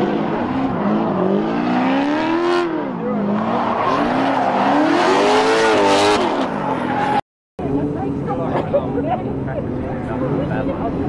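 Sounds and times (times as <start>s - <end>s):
car engine revving hard: 0.0s - 7.2s.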